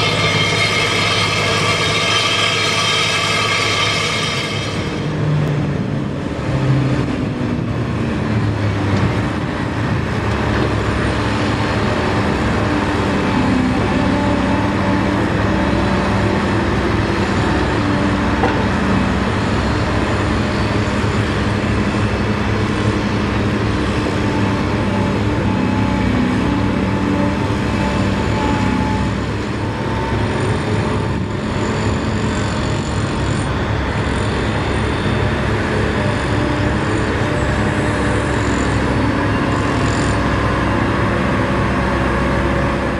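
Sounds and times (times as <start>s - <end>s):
excavator diesel engine revving: 0.0s - 42.9s.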